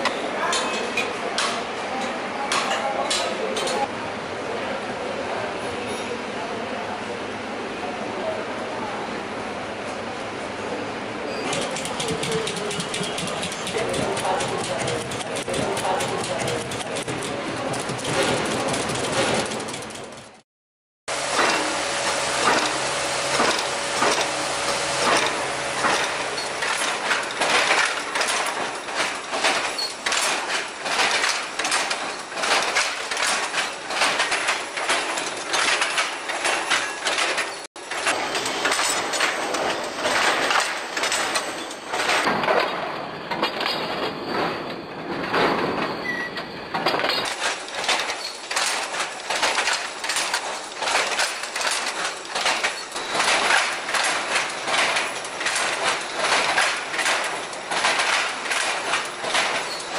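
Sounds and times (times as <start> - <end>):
loom mechanical clatter: 11.3 - 20.4, 21.1 - 59.9.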